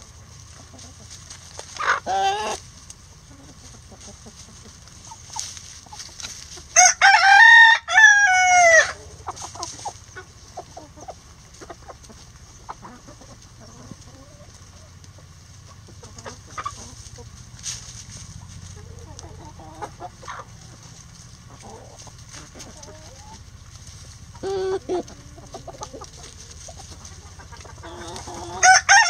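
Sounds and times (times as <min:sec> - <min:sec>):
chicken call: 0:01.8 - 0:02.6, 0:04.6 - 0:14.9, 0:24.3 - 0:29.0
rooster crowing: 0:06.8 - 0:09.2, 0:27.8 - 0:29.0.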